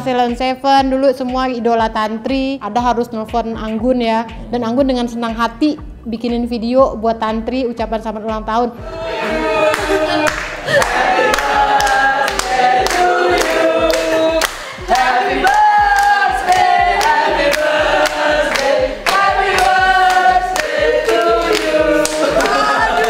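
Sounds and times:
sharp rhythmic strikes: 0.0s - 23.0s
voices singing together: 8.8s - 23.0s.

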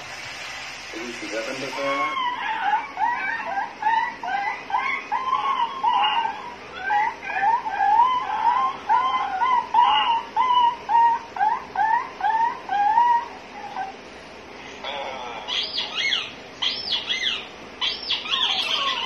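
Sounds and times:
recorded bird chirps through speaker: 14.9s - 19.0s.

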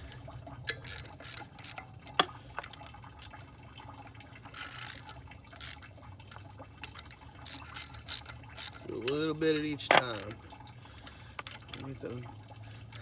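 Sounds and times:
hand ratchet clicking: 0.7s - 1.8s, 4.5s - 5.8s, 7.4s - 10.3s.

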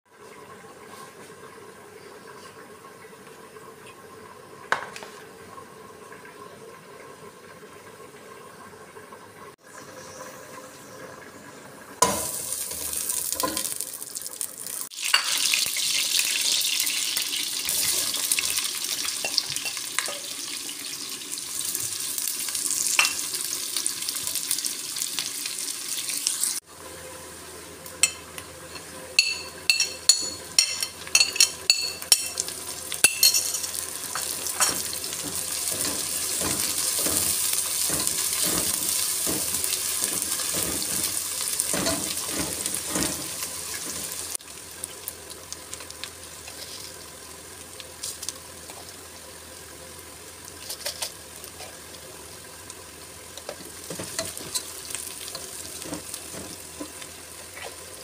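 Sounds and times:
onions sizzling in oil: 12.0s - 58.0s
spatula scraping pot: 34.2s - 44.1s.

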